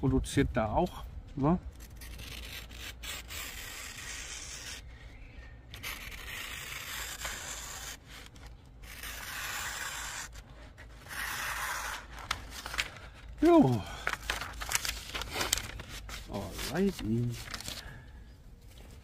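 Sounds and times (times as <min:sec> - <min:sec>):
knife slicing through paper: 0:01.9 - 0:04.8, 0:05.8 - 0:12.9.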